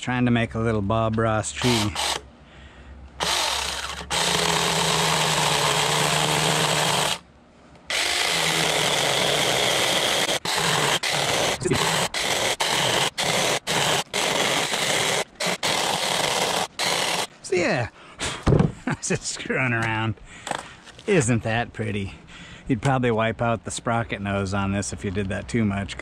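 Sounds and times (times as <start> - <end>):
electric chainsaw cutting wood: 1.6 - 2.2, 3.2 - 7.2, 7.9 - 17.3.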